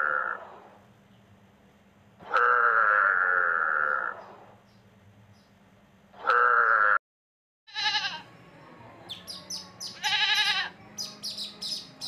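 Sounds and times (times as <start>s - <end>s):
goats bleating: 7.7s - 8.3s, 9.9s - 10.8s.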